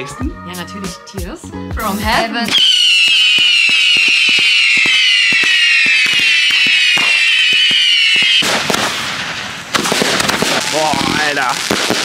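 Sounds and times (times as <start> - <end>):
firework whistle falling in pitch: 2.5 - 8.8
rough crackling burst: 2.5 - 12.0
sharp crackling pops: 2.5 - 12.0.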